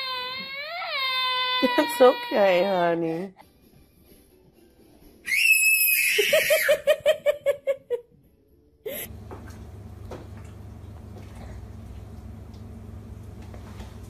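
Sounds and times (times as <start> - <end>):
baby squealing: 0.0 - 2.5, 5.2 - 6.8
baby laughing: 6.0 - 8.0
steady low hum: 8.9 - 14.0.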